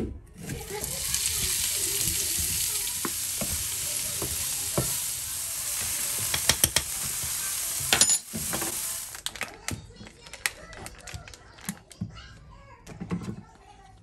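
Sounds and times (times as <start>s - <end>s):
vegetables sizzling in a frying pan: 0.4s - 9.4s.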